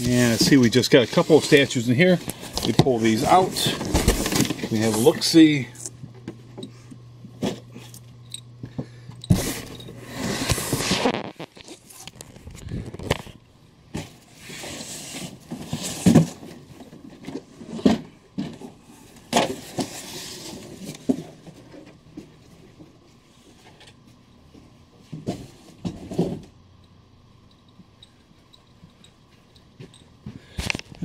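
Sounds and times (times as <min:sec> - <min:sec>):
cardboard rustling and scraping: 0:00.0 - 0:05.5, 0:09.3 - 0:22.4.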